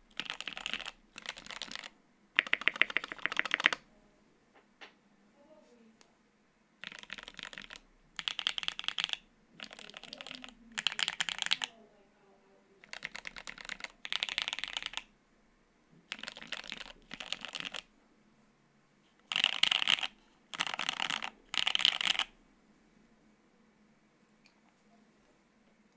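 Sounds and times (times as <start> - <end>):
mechanical keyboard typing: 0.1 - 3.8, 6.8 - 11.7, 12.8 - 15.1, 16.1 - 17.9, 19.3 - 22.3.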